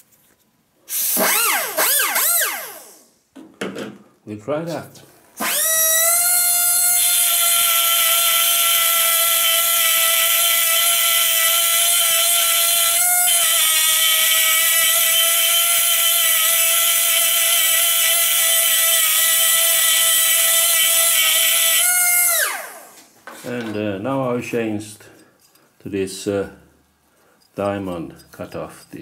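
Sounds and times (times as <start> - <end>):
die grinder high whine: 0.9 - 3.1, 5.4 - 23.1.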